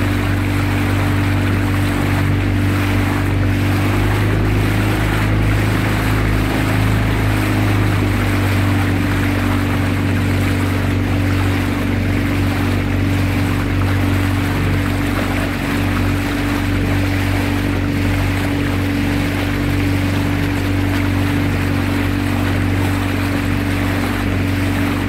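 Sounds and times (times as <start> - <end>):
motorboat engine running: 0.0 - 25.0
water rushing past hull: 0.0 - 25.0.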